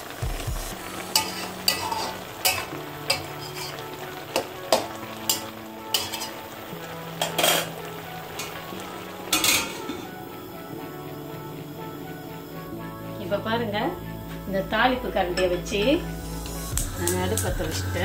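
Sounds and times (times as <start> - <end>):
cooking liquid sizzling: 0.0 - 18.0
metal spatula scraping a pan: 1.0 - 6.4, 7.2 - 7.7, 9.3 - 10.1
steel lid clattering on pan: 7.2 - 7.7, 9.3 - 10.0.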